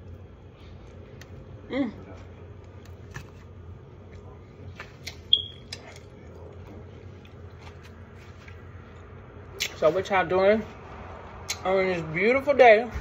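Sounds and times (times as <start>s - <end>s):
mouth chewing and smacking: 4.0s - 9.8s.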